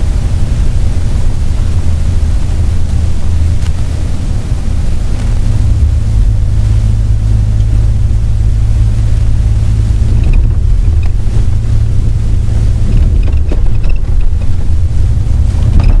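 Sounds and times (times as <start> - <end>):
vehicle engine and road noise: 0.0 - 16.0
faint small rattles: 10.0 - 16.0.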